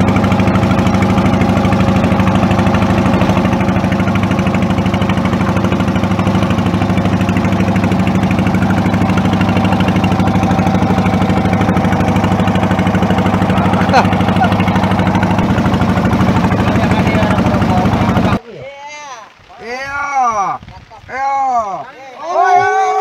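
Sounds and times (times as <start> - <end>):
boat engine throbbing: 0.0 - 18.4.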